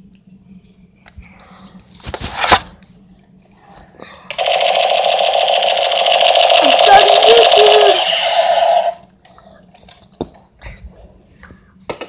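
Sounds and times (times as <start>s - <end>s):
toy gun motor whirring: 4.3s - 9.0s.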